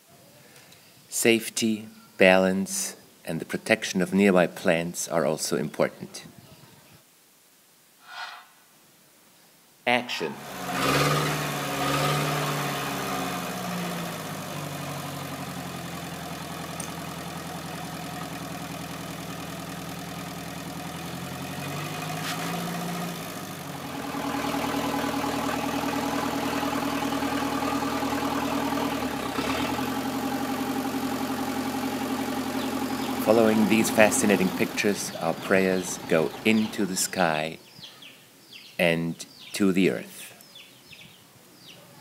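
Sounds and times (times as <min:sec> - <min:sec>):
drilling rig engine running: 0:10.2 - 0:37.1.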